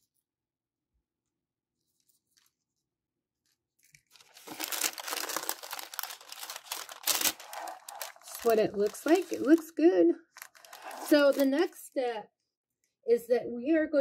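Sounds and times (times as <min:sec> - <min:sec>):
paper crinkling and rustling: 0:01.8 - 0:02.8, 0:03.4 - 0:09.7, 0:10.3 - 0:11.7.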